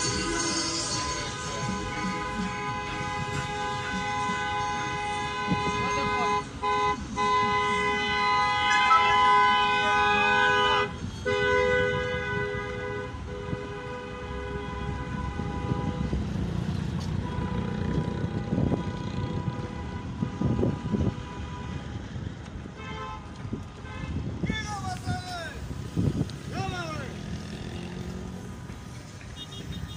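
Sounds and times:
taxi horns hooting: 0.0s - 16.2s
low rumble of vehicles: 0.0s - 29.9s.

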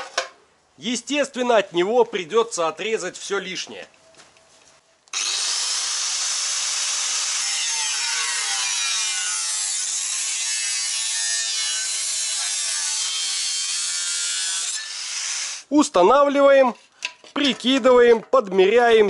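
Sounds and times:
angle grinder cutting metal: 5.1s - 15.6s.

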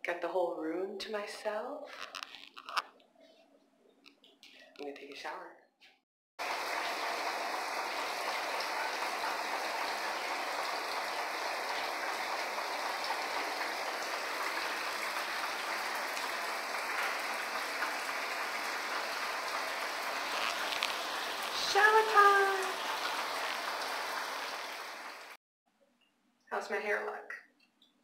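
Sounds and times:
shower water spraying: 6.4s - 25.4s.

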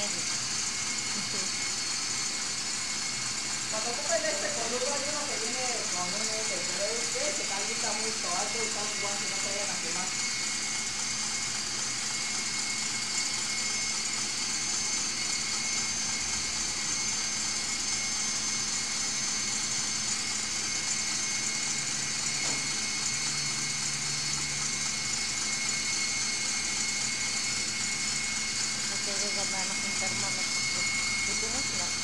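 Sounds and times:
stand mixer whirring: 0.0s - 32.0s.

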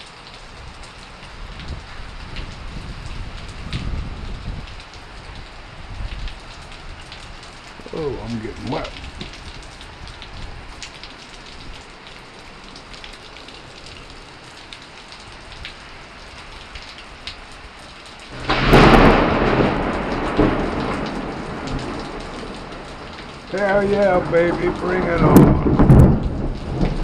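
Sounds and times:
heavy rain falling: 0.0s - 27.0s
thunderclap: 18.3s - 27.0s.

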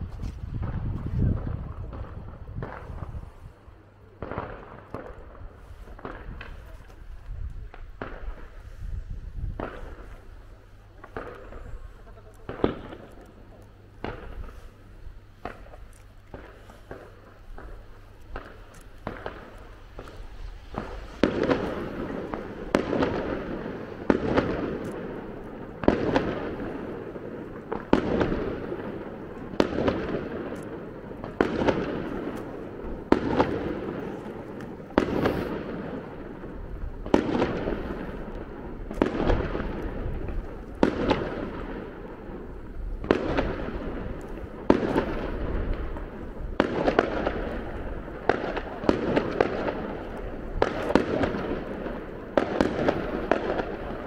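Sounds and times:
fireworks bangs: 0.0s - 54.0s.

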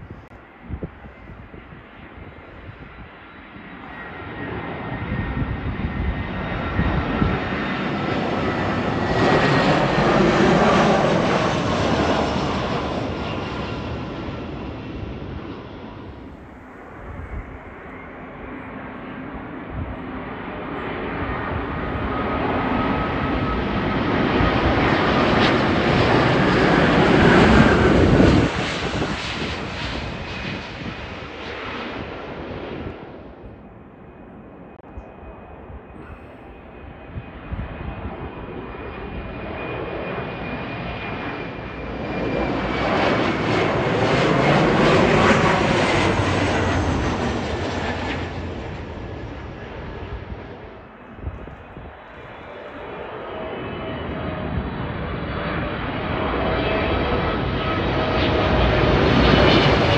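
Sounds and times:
jet airliner passing overhead: 0.0s - 59.9s.

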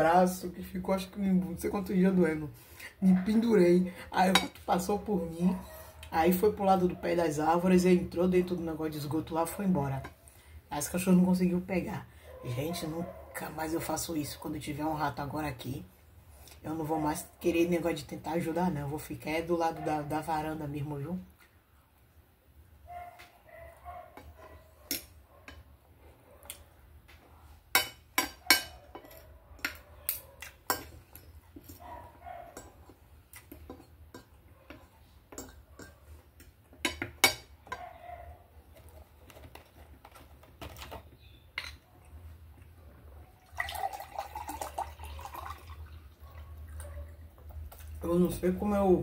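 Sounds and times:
liquid poured into a glass: 43.4s - 46.8s.

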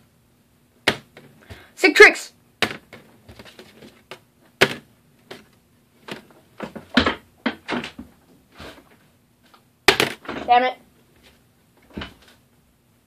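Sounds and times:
rustling: 2.9s - 4.2s.

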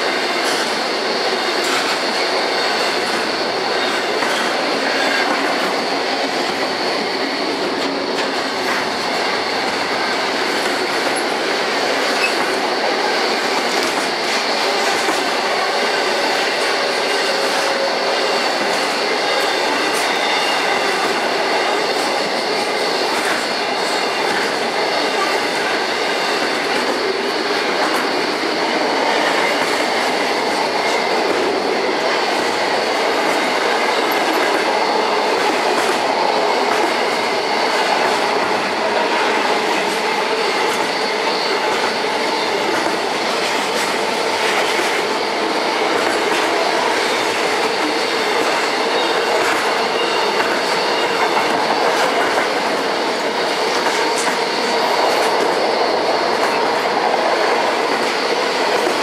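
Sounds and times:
train wheels rumbling on rail: 0.0s - 59.0s
high wheel squeal: 0.3s - 31.7s, 33.1s - 52.6s.

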